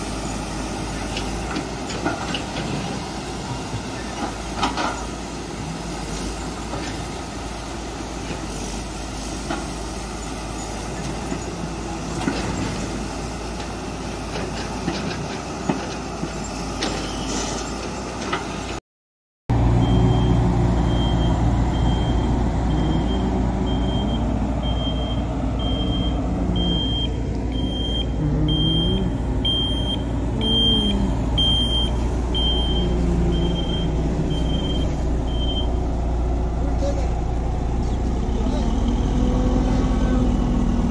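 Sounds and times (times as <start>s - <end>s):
diesel road roller engine: 0.0s - 18.8s, 19.5s - 40.9s
reversing alarm beeping: 19.8s - 35.8s.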